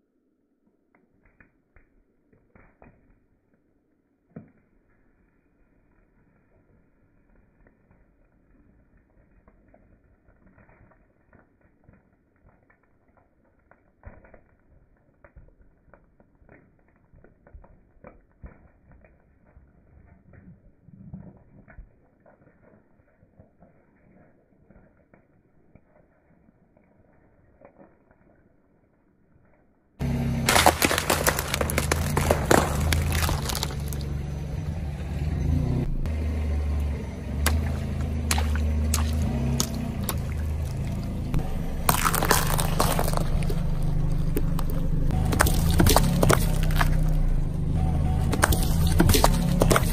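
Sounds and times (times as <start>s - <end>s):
cake crushed under car tyre: 30.0s - 34.4s, 37.4s - 47.4s, 48.2s - 49.9s
sharp crack: 30.0s - 34.5s, 37.4s - 49.9s.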